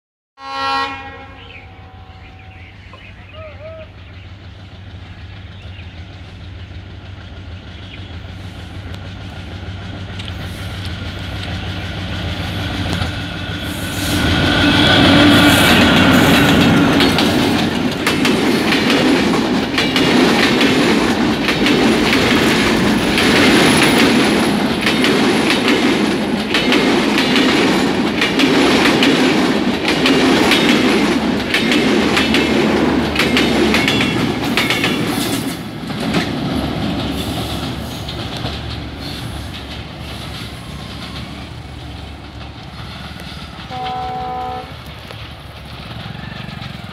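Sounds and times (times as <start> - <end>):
locomotive horn blast: 0.4 - 2.7, 43.7 - 44.9
diesel locomotive engine: 0.4 - 46.9
train wheels clattering over rail joints: 4.0 - 46.9.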